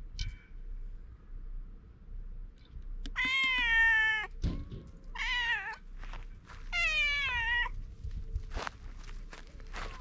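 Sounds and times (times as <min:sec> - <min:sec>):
cat meowing: 0:03.1 - 0:04.3, 0:05.2 - 0:05.8, 0:06.7 - 0:07.7.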